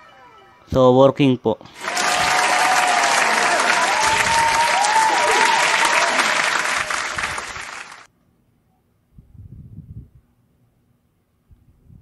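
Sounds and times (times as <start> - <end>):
crowd applause: 1.7 - 8.1.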